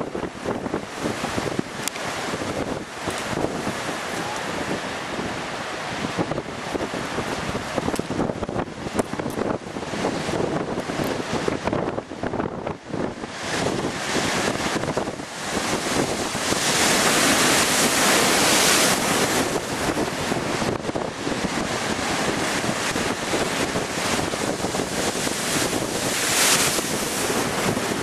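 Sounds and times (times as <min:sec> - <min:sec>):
wind buffeting microphone: 0:00.0 - 0:28.0
surf breaking on breakwater: 0:13.2 - 0:28.0.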